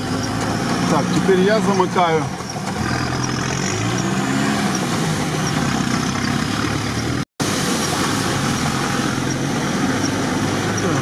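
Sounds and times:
vehicle engine from inside cab: 0.0s - 11.0s.

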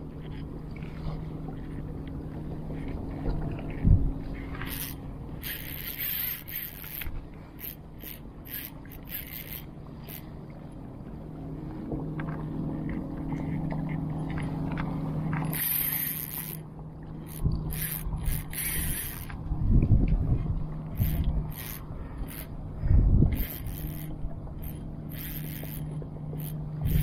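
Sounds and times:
fishing reel gears whirring: 0.0s - 11.8s, 12.4s - 27.0s
reel clicks: 0.1s - 10.4s, 12.2s - 20.2s, 20.8s - 22.6s, 23.3s - 27.0s.

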